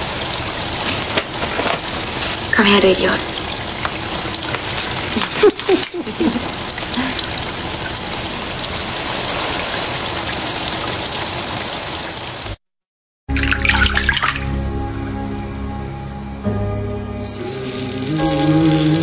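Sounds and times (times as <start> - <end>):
shower spray running: 0.0 - 10.8, 17.2 - 19.0
water splash: 0.0 - 12.6, 13.3 - 14.6
music: 13.3 - 19.0.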